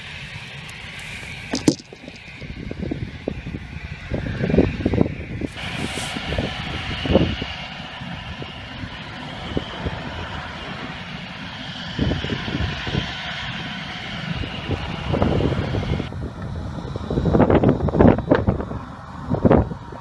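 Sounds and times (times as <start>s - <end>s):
jet engines whining: 0.0s - 20.0s
wind buffeting microphone: 0.0s - 20.0s.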